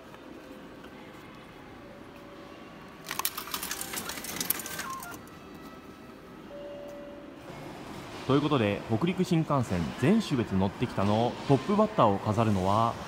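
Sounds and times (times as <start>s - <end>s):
ticket gate mechanical clattering: 3.0s - 5.2s.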